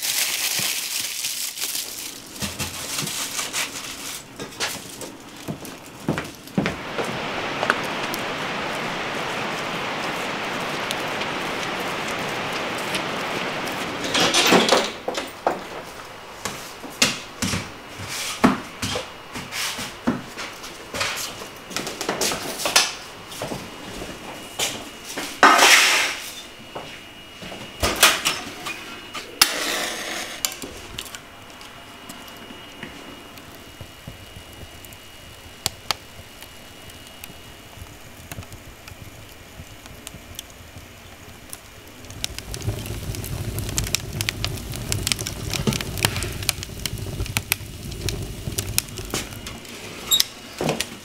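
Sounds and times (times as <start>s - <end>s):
steady rain hiss: 0.0s - 51.0s
firewood knocking and clattering: 2.2s - 8.2s, 9.2s - 17.7s, 37.8s - 51.0s
match struck and flaring: 25.5s - 26.2s, 42.0s - 49.7s.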